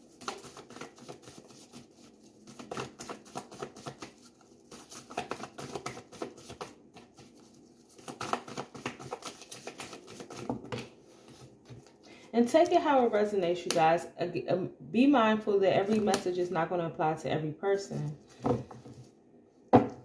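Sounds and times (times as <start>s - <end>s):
cards being shuffled: 0.1s - 12.0s.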